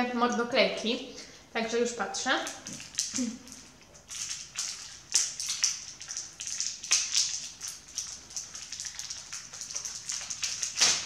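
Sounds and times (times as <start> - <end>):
plastic packaging crackling: 6.4 - 11.0.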